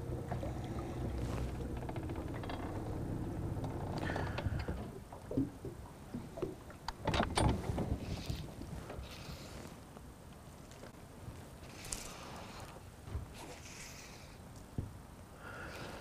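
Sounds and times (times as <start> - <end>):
low mechanical hum: 0.0 - 16.0
knocks and taps in boat: 0.3 - 8.2.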